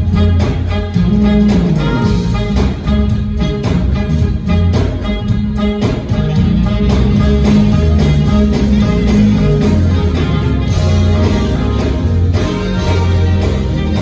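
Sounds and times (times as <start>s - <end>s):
electric bass: 0.0s - 14.0s
live soul-jazz band: 0.0s - 14.0s
saxophone lead: 0.0s - 14.0s.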